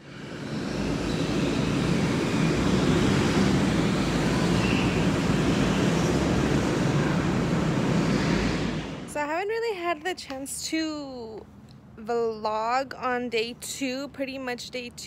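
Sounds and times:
go-karts rumbling past: 0.0 - 9.1.

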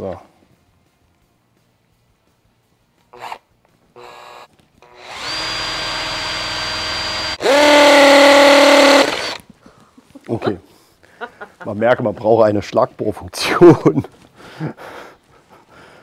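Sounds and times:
cordless drill boring into bone: 4.0 - 9.4.

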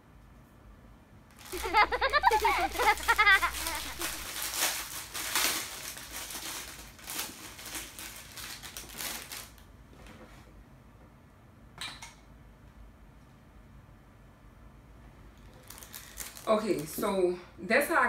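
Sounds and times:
small items clattering: 1.4 - 9.6, 15.4 - 17.0
rustling of bags: 1.4 - 10.1, 15.4 - 17.1.

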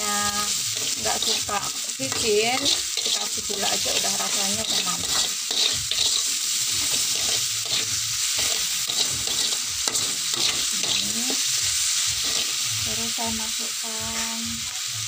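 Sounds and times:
food sizzling in hot oil: 0.0 - 15.0
metal spatula scraping a wok: 0.5 - 12.8.

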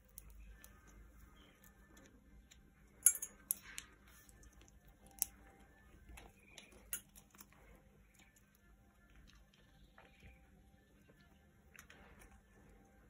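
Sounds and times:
beak clinking in metal bowl: 3.0 - 3.8.

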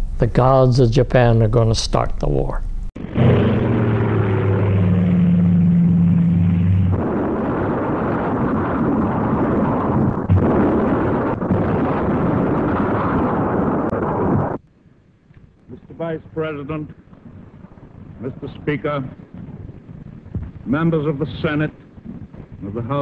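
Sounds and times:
sharp bangs: 2.9 - 14.6
falling whine: 2.9 - 14.7
explosions rumbling: 2.9 - 23.0
aircraft engines droning: 3.0 - 7.0.

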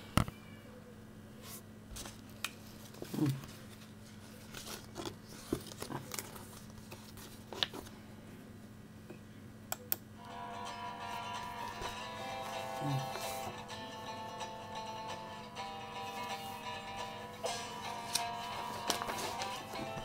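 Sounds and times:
clicks and crinkles of paper pages: 1.9 - 7.9, 18.0 - 20.0.

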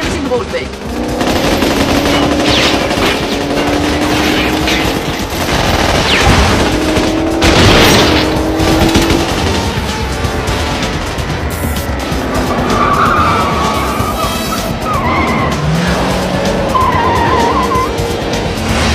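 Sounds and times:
automatic gunfire: 0.9 - 9.7.

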